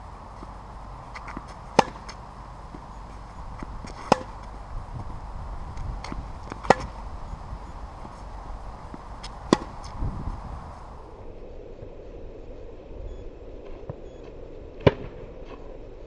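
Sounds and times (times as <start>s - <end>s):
tennis racket striking ball: 1.1s - 2.9s, 3.6s - 4.6s, 5.8s - 7.0s, 8.9s - 10.0s.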